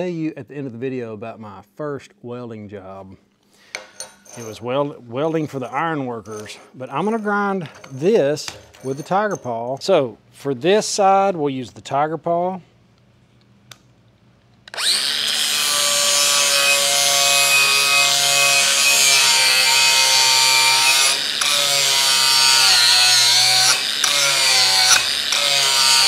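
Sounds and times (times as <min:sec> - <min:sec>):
angle grinder grinding steel: 0:14.7 - 0:26.0.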